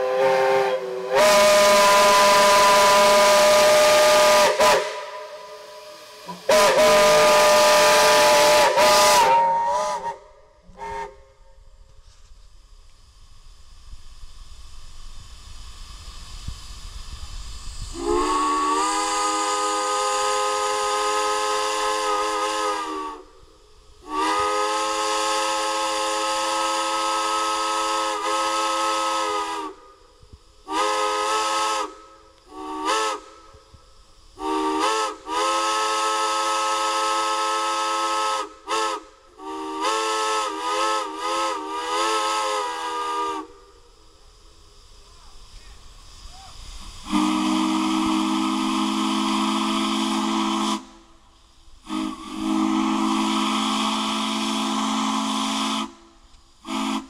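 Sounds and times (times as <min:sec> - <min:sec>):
steam whistle chord blasts: 0:00.0 - 0:11.7, 0:17.9 - 0:44.1, 0:46.8 - 0:57.0
steam hissing: 0:00.0 - 0:57.0.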